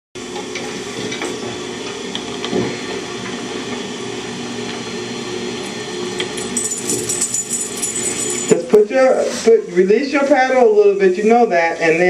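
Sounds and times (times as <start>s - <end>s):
sewing machine motor hum: 0.2s - 8.6s.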